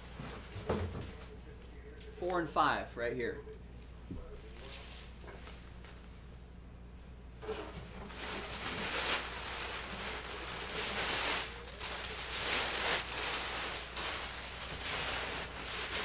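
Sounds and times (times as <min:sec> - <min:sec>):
packaging rustling and crinkling: 0:07.4 - 0:16.0.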